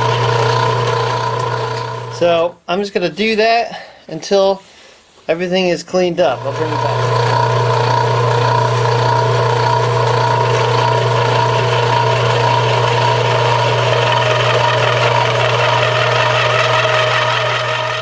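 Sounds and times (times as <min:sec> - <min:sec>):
milling machine cutting metal: 0:00.0 - 0:02.3, 0:06.3 - 0:18.0.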